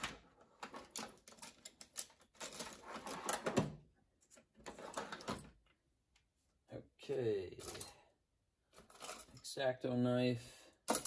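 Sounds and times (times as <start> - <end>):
pens rattling in a drawer: 0.0 - 3.6.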